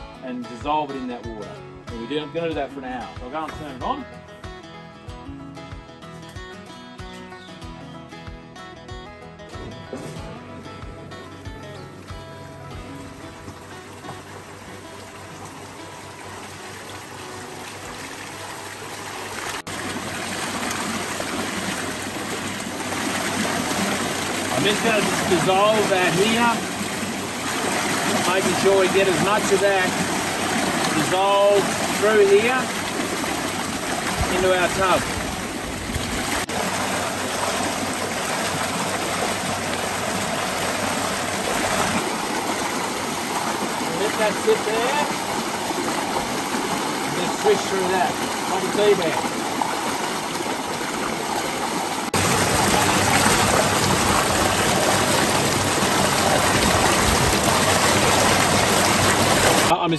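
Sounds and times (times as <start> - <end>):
water pouring through bowls: 12.8 - 59.7.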